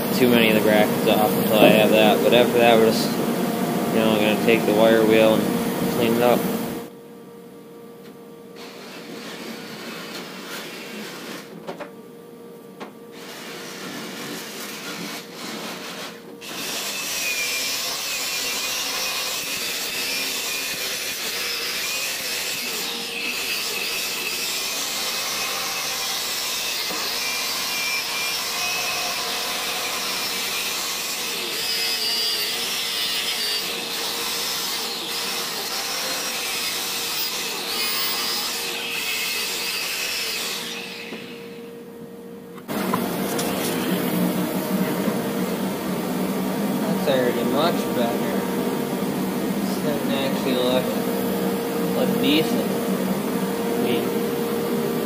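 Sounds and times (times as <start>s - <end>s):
wire wheel grinder scouring metal: 13.2s - 41.2s.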